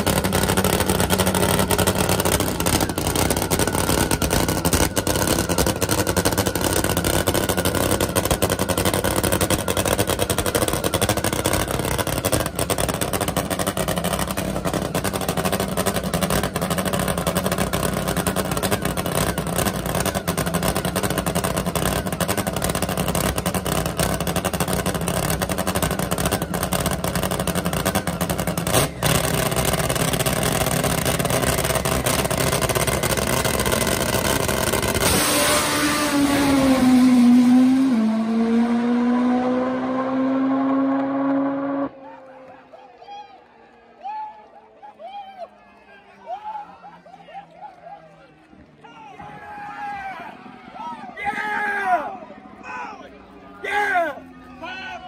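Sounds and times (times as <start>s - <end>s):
drag motorcycle engine idling: 0.0s - 35.1s.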